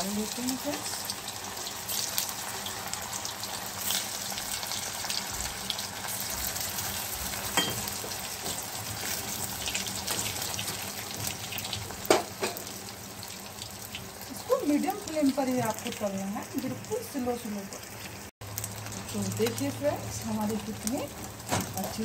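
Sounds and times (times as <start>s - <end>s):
food deep-frying in oil: 0.0s - 22.0s
metal spoon clinking on pan: 7.5s - 8.1s.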